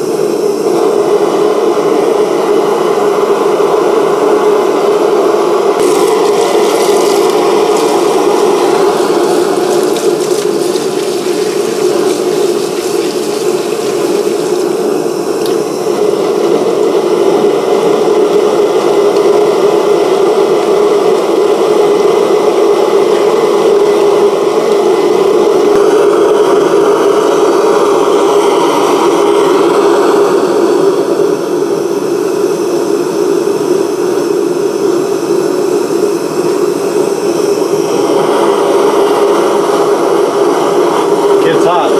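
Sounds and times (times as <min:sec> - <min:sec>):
furnace rushing: 0:05.8 - 0:15.1.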